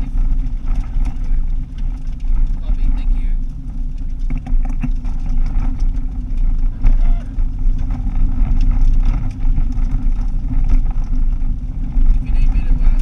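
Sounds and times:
car body clicks and rattles: 0.0 - 13.0
car engine and tyre rumble: 0.0 - 13.0.

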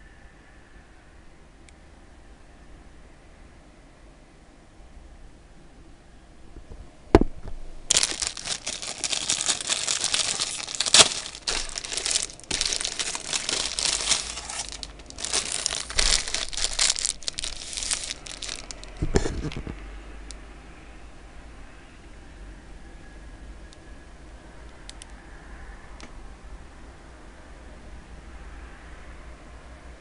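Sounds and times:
plastic wrapper crinkling: 7.9 - 19.8.

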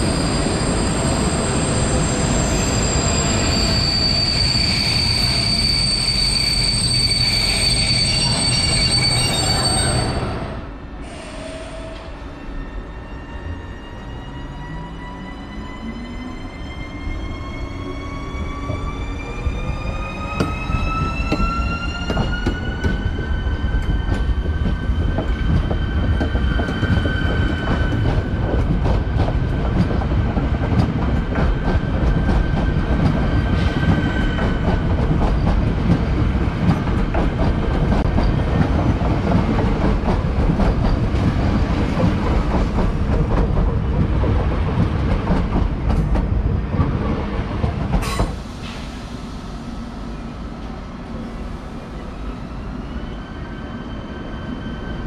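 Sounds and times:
train wheels rumbling and clicking: 19.5 - 49.1.

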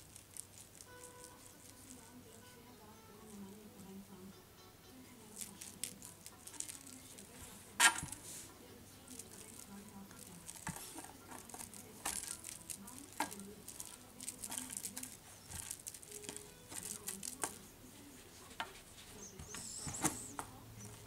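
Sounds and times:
puppy chewing a toy: 5.3 - 8.5, 9.1 - 17.8
rustling and scrapes on rug: 5.4 - 21.0.

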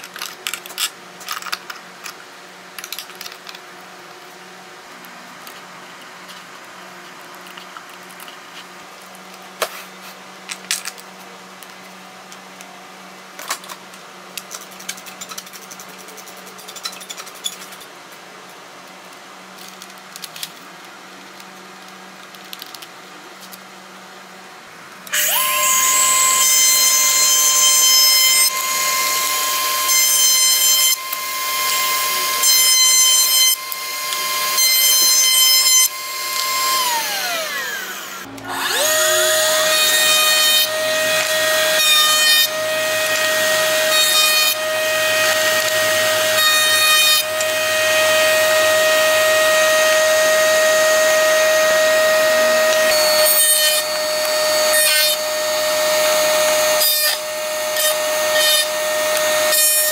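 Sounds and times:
router whining: 25.1 - 59.9.

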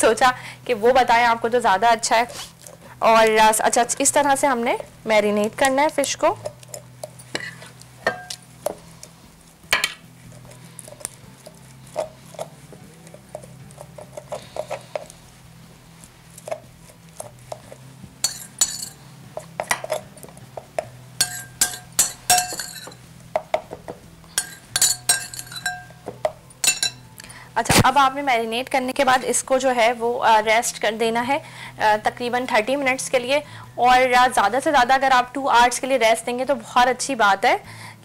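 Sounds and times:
utensils clinking against glass: 18.2 - 19.0, 21.2 - 23.0, 24.4 - 27.0.

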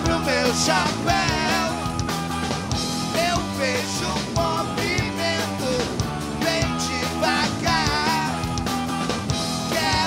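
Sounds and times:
man singing: 0.0 - 2.1, 3.1 - 8.6, 9.6 - 10.0
live rock band: 0.0 - 10.0.

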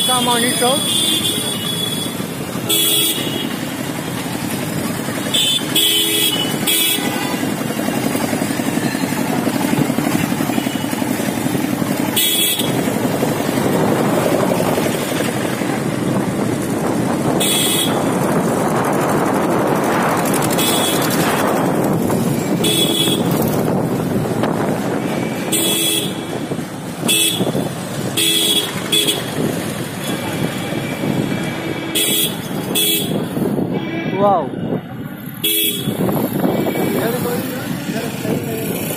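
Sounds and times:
vehicle horns honking: 0.0 - 4.0, 5.1 - 9.2, 10.0 - 11.4, 12.1 - 13.0, 17.4 - 18.2, 20.4 - 21.4, 22.5 - 23.6, 24.9 - 37.3
motorcycle engine and wind noise: 0.0 - 38.9.

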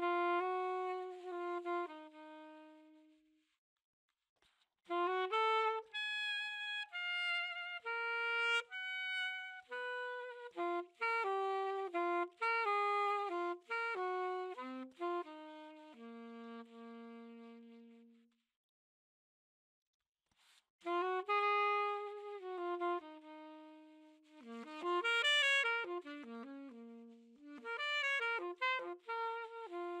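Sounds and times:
alto saxophone jazz melody: 0.0 - 3.5, 4.9 - 18.4, 20.8 - 30.0.

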